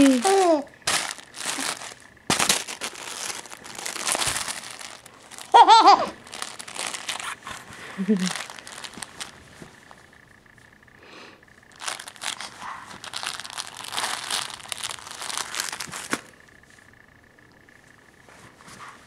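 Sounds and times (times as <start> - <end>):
cloth book pages crinkling: 0.0 - 10.1, 11.7 - 16.3.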